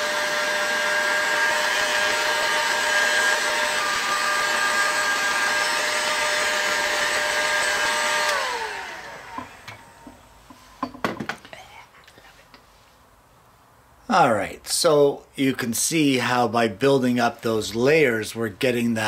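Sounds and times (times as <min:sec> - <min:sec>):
fan winding down: 0:00.0 - 0:10.1
heat gun fan whine: 0:00.0 - 0:11.2.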